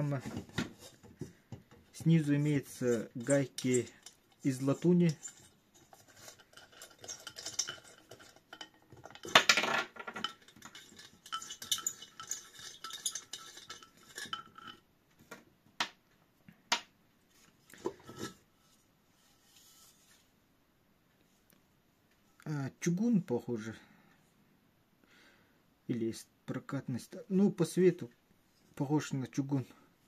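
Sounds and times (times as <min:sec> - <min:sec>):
metal scraping and clinking: 0:00.0 - 0:14.8, 0:17.7 - 0:18.5
metal cover clattering: 0:02.7 - 0:14.8.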